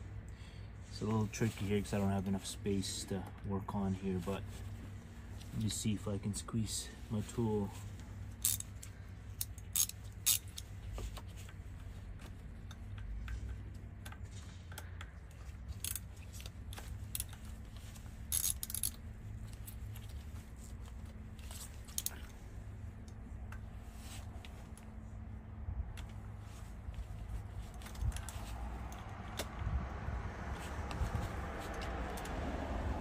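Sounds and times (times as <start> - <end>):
low steady hum: 0.0 - 33.0
ratchet and socket metallic clicks: 8.3 - 11.6, 12.6 - 20.2, 21.4 - 22.4.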